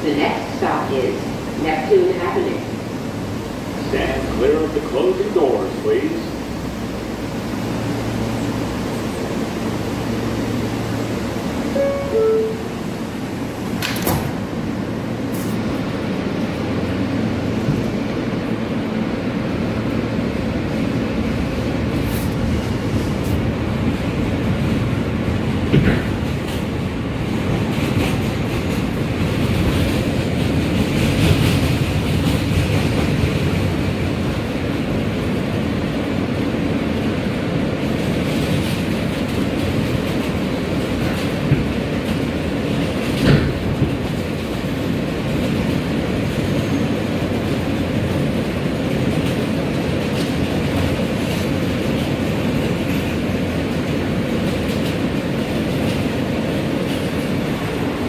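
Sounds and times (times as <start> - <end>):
rumble of train wheels and motors: 0.0 - 58.0
clacks over rail joints: 24.5 - 34.5, 37.8 - 57.7.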